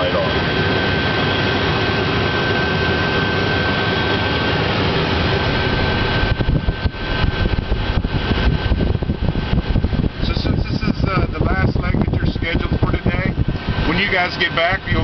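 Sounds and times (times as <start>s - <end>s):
jet engine rush and whine: 0.0s - 15.0s
uneven low rumble: 4.7s - 15.0s.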